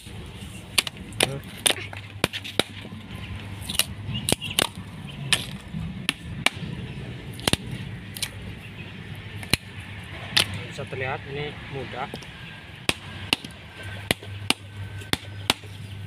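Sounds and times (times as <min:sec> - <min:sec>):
coconut shell cracking: 0:00.7 - 0:06.7, 0:07.3 - 0:08.4, 0:09.4 - 0:10.6, 0:12.1 - 0:15.8.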